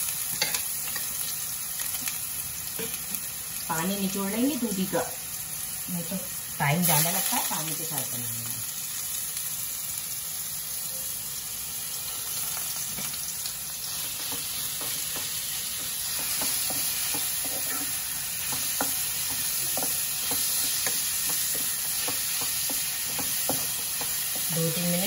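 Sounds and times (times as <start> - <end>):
vegetables sizzling in ghee: 0.0 - 25.0
wooden spatula scraping pan: 14.0 - 25.0.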